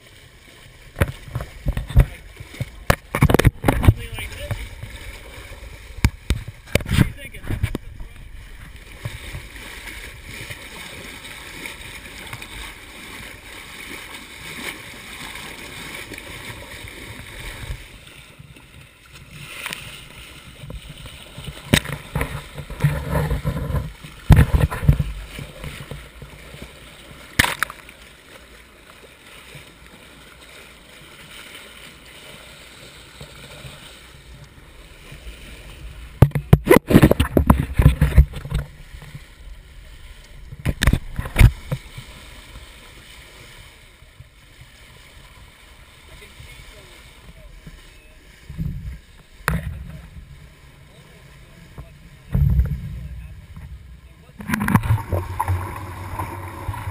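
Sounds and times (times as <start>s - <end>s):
water rushing along hull: 0.0s - 56.9s
camera handling knocks and rubbing: 2.9s - 3.9s.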